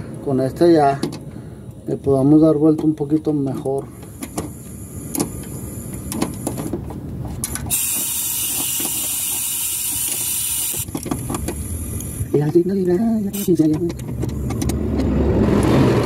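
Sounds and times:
air hissing through valve: 7.7 - 12.3.

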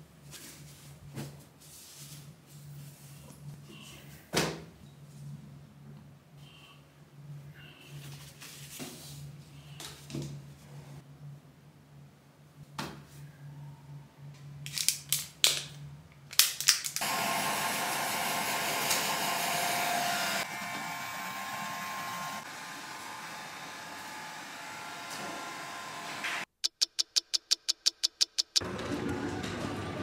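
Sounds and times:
hair dryer blowing: 17.0 - 26.5
sharp clicks: 26.6 - 28.6.

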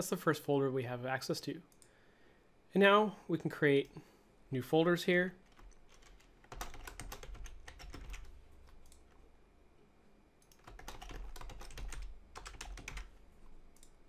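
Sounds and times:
computer keyboard typing: 5.4 - 9.2, 10.4 - 13.9.

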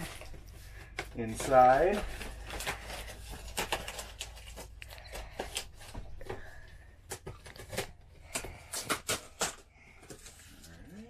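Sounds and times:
packing tape crinkling and clicking: 0.0 - 11.0.

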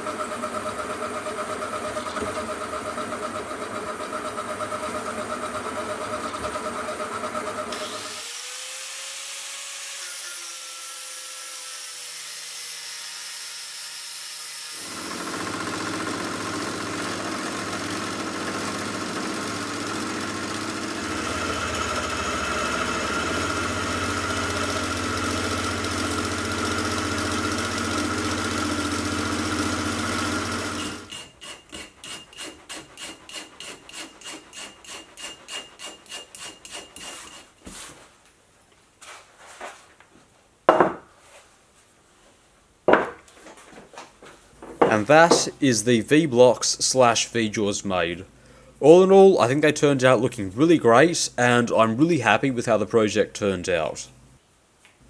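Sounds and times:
milling machine motor hum: 0.0 - 8.6, 14.7 - 31.1
hand tool rasping on steel: 31.1 - 37.6.

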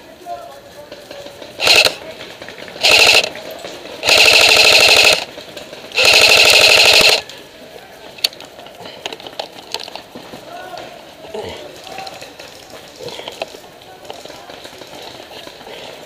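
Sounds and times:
airsoft gun firing bursts: 1.6 - 2.0, 2.7 - 3.4, 4.0 - 7.2.

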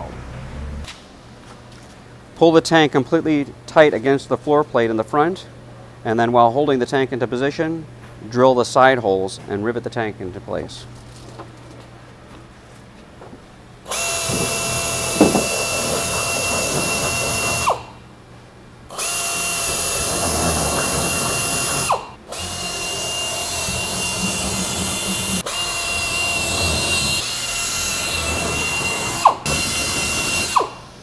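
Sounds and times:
pneumatic air drill whining: 13.8 - 18.0, 18.9 - 31.0.

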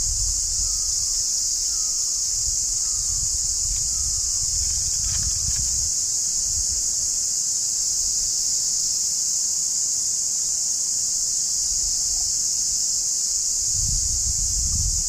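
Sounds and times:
insects chirping: 0.0 - 15.0.

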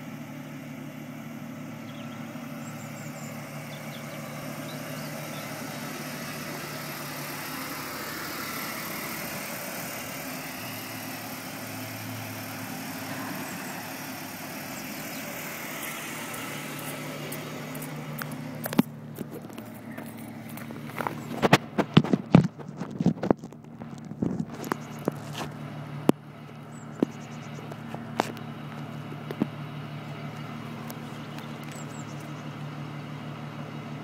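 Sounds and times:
car engine idling: 0.0 - 34.0.

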